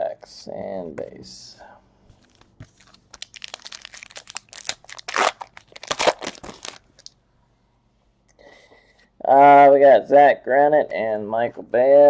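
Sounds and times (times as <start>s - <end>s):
foil wrapper tearing and crinkling: 2.2s - 7.1s.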